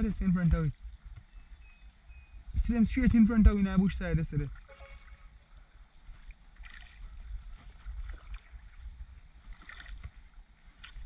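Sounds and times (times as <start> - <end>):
water splashing from paddling: 4.3 - 11.0.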